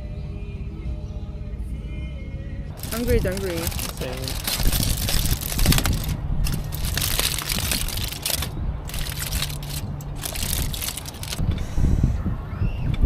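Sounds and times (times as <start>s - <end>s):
steady low rumble: 2.5s - 12.6s
aluminium foil crinkling: 2.7s - 11.4s.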